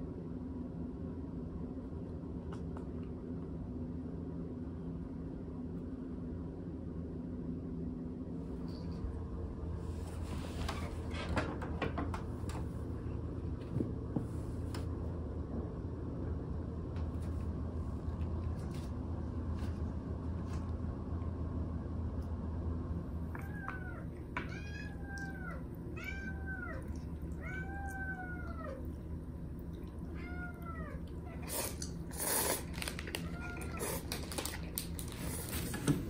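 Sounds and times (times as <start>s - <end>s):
steady low hum: 0.0s - 36.0s
cat meowing: 23.4s - 28.8s, 30.2s - 31.5s, 33.2s - 34.1s.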